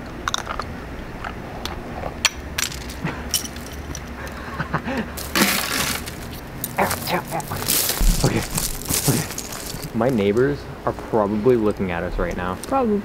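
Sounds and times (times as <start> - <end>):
ice clinking and snapping: 5.2 - 6.9, 7.6 - 10.2
rush of crackling ice: 5.2 - 10.4.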